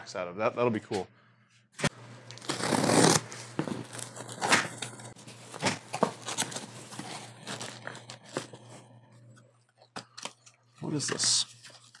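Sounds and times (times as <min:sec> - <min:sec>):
packing tape ripping: 0:02.3 - 0:08.4.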